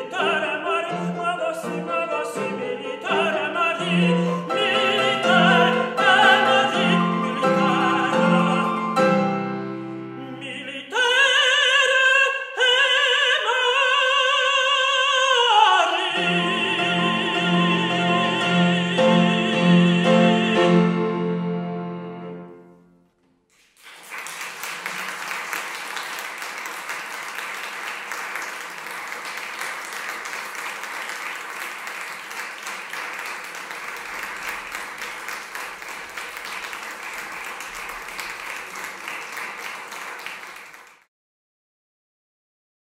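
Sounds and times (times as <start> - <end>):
piano notes: 0.0 - 10.8, 15.9 - 23.5
person singing: 0.0 - 22.7
audience applauding: 23.5 - 41.1.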